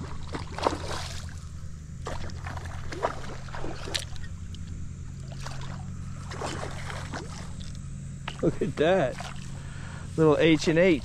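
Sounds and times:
fish splashing at water surface: 0.0s - 1.4s, 2.0s - 4.2s, 5.2s - 8.4s
steady low hum: 0.0s - 11.0s.

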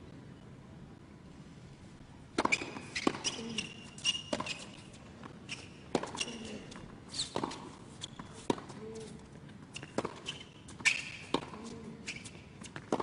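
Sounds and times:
racket striking tennis ball: 2.3s - 4.9s, 5.9s - 6.5s, 7.3s - 7.8s, 9.8s - 11.7s, 12.7s - 13.0s
shoes squeaking on court: 2.4s - 13.0s.

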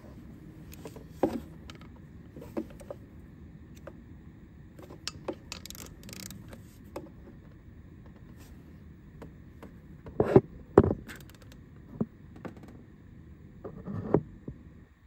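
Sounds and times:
wrench clicking on bolt: 5.1s - 6.4s.

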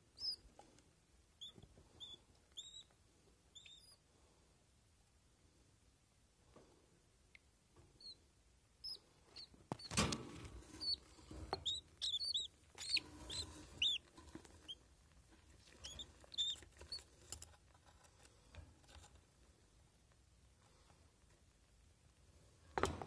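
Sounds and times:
chicks chirping: 0.1s - 0.4s, 1.4s - 2.9s, 3.5s - 4.0s, 8.8s - 10.0s, 10.8s - 14.8s, 15.6s - 17.1s.

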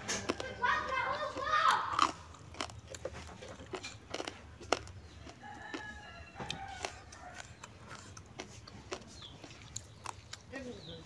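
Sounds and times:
rooster crowing: 5.2s - 7.6s.

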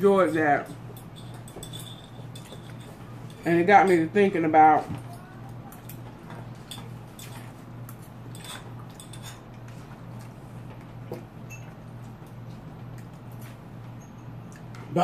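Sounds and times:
steady low hum: 0.0s - 15.0s
forks tapping on plates: 0.2s - 4.1s.

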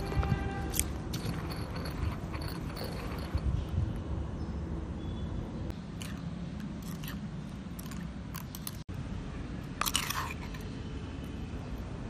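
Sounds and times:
spoon scraping stone mortar: 0.0s - 3.8s, 9.8s - 10.8s.

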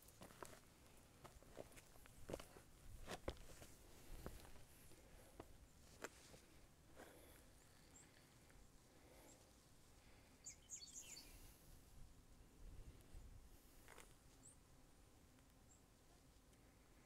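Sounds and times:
footsteps on dirt trail: 0.0s - 7.4s.

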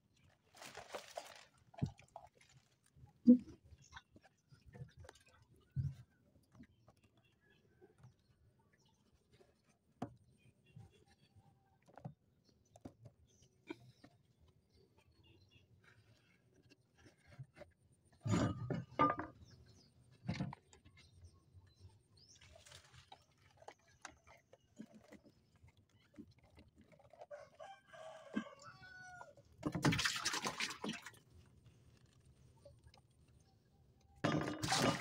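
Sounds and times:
rooster crowing: 27.4s - 29.3s.

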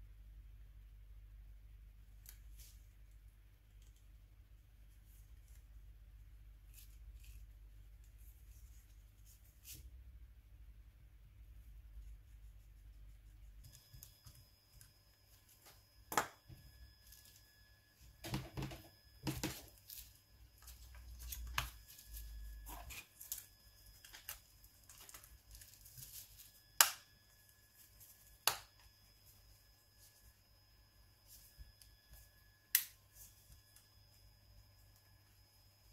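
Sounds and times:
bubble wrap rustling: 19.3s - 28.5s.

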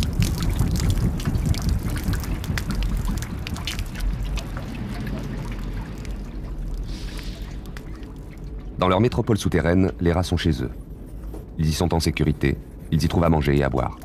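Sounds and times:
small sharp splashes: 0.0s - 8.8s
water splashing in sewer channel: 0.0s - 10.9s
steady low rumble: 0.0s - 13.3s.

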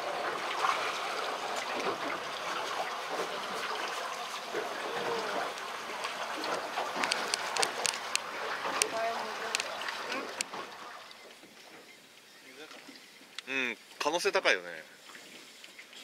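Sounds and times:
water lapping against boat hull: 0.0s - 14.0s, 14.8s - 16.0s
sharp clicks: 7.0s - 8.2s.

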